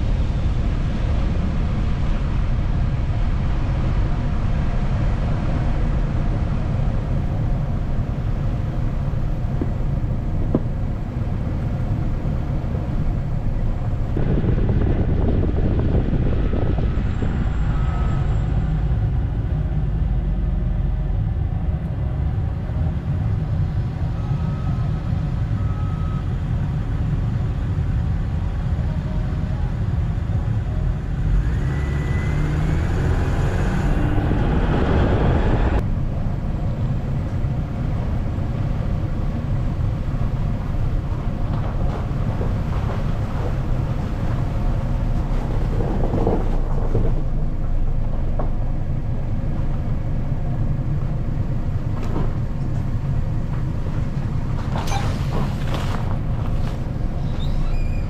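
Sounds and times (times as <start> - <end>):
car engine rumble: 0.0 - 58.0
tyres on snowy road: 0.0 - 58.0
rising whine: 30.6 - 38.2.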